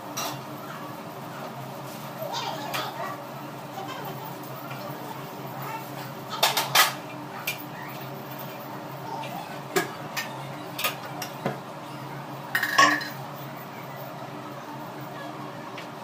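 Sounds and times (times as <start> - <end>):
kitchenware clinking: 12.5 - 13.2.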